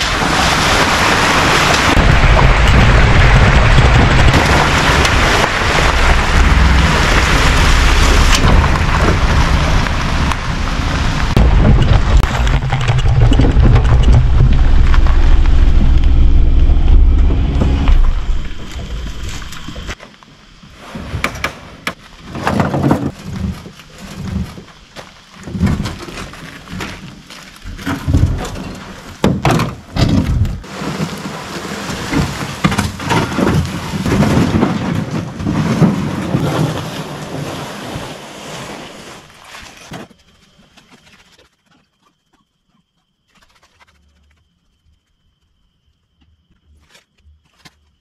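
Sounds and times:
boat scraping over ground: 0:00.0 - 0:20.0, 0:20.7 - 0:41.6.

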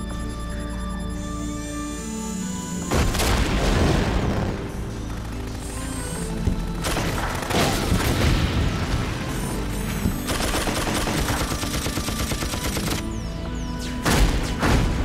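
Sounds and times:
background music: 0:00.0 - 0:15.0
blasts: 0:02.9 - 0:04.9
rapid automatic gunfire: 0:06.8 - 0:08.2, 0:10.3 - 0:13.1.

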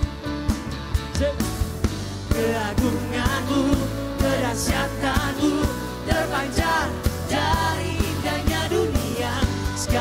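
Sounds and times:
backing music with drum beat: 0:00.0 - 0:10.0
man singing into a microphone: 0:02.3 - 0:05.7.

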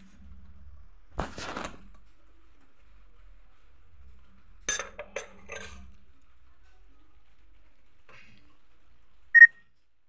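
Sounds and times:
spoon scraping glass dish: 0:04.7 - 0:05.9.

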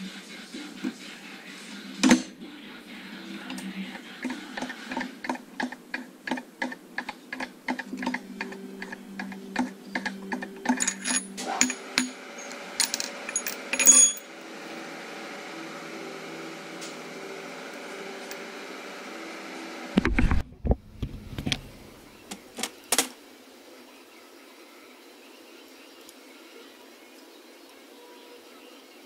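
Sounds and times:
steady hum: 0:00.0 - 0:29.0
metal parts clicking: 0:10.4 - 0:14.2
metal parts clinking on steel: 0:10.6 - 0:14.3.

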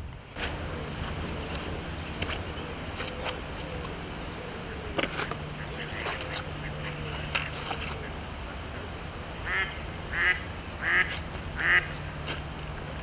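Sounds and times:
duck quacking: 0:09.4 - 0:11.9.

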